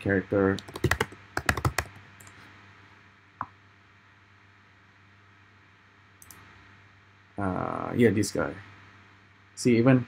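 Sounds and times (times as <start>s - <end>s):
faint room hum: 0.0s - 10.0s
keyboard typing: 0.5s - 2.3s.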